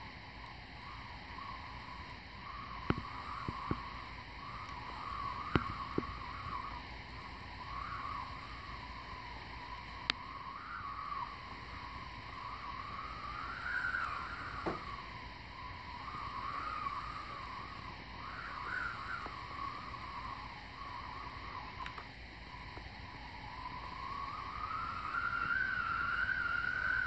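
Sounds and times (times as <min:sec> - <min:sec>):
wavering whistle: 0:00.0 - 0:27.0
sharp clicks: 0:21.8 - 0:22.1.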